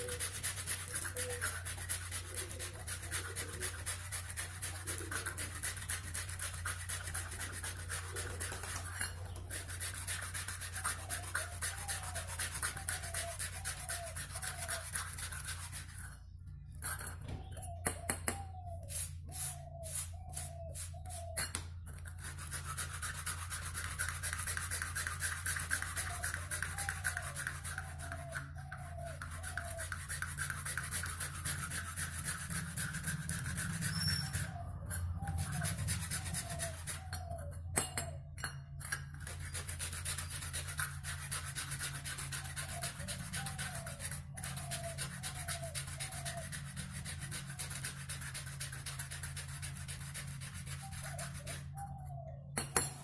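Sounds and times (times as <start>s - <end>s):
sandpaper scrubbing metal: 0.0s - 16.2s, 18.8s - 21.4s, 22.0s - 37.4s, 38.8s - 51.7s.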